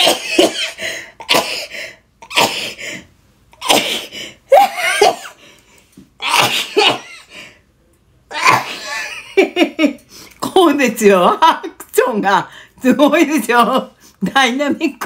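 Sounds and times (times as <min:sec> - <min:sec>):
woman sneezing: 0:06.2 - 0:07.2.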